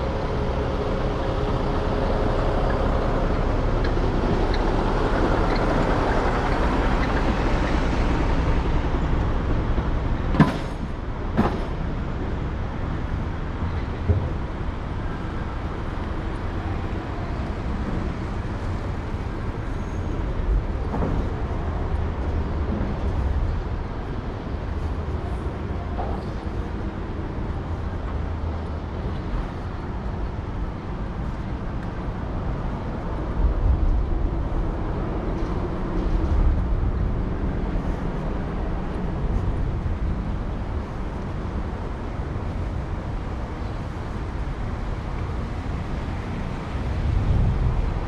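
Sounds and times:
steady low rumble: 10.9 - 48.0.

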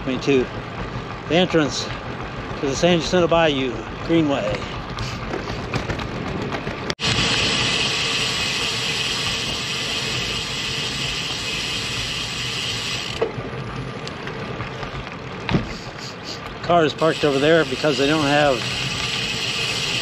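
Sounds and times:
wind and road noise hiss: 7.0 - 13.3, 15.5 - 20.0.

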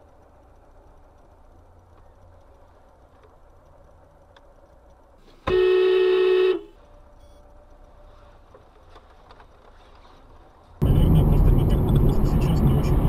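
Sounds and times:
faint car interior hum: 0.0 - 13.0
car horn honk: 5.4 - 6.8.

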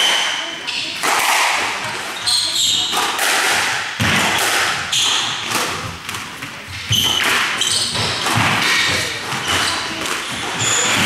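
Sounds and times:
squash ball hit by rackets: 1.0 - 11.0
shoes squeaking on wooden floor: 1.8 - 3.0, 4.8 - 11.0.

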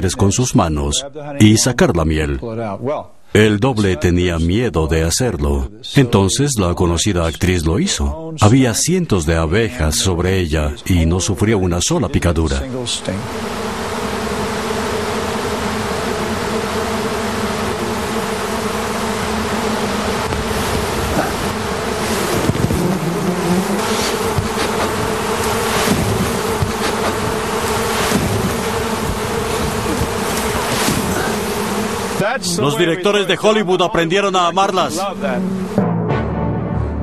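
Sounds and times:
bees buzzing: 8.6 - 35.9.

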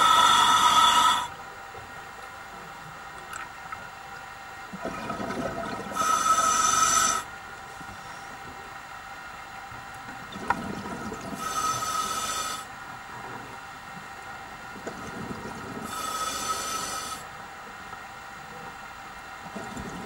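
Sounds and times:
regulator hissing inhale: 0.0 - 1.3, 5.9 - 7.3, 11.4 - 12.7, 15.8 - 17.3
bubbling underwater exhale: 4.7 - 7.2.

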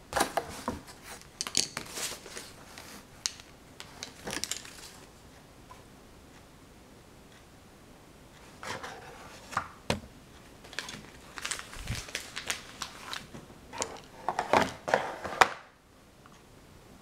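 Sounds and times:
crinkling and rustling: 0.1 - 5.2, 8.4 - 15.7.

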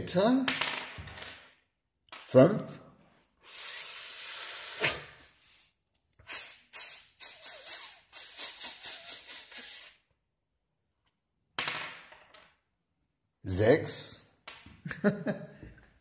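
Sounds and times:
long hiss of breath: 3.4 - 5.1
short quick breath puffs: 3.4 - 10.0.

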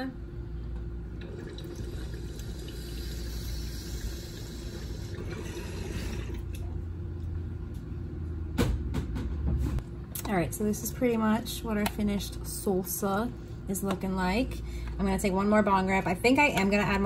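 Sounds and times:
water bubbling in a bong: 1.2 - 6.6.

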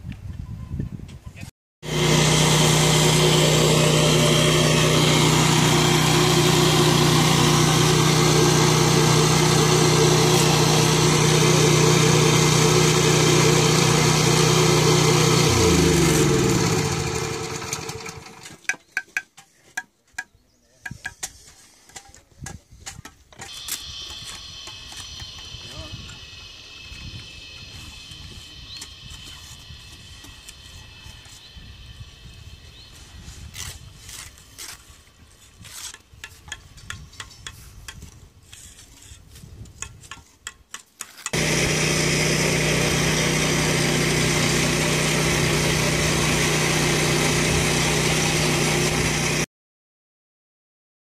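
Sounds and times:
small petrol engine running: 1.8 - 18.6, 41.3 - 49.5.

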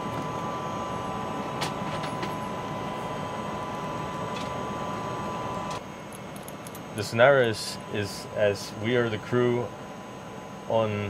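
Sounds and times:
cabin fans humming: 0.0 - 11.0
constant whine: 0.0 - 11.0.

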